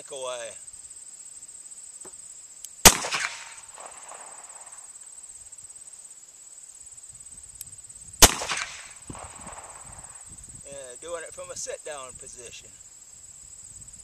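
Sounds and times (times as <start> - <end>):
crickets chirping: 0.0 - 14.0
revolver gunshots with echo: 2.8 - 4.8, 8.2 - 10.2.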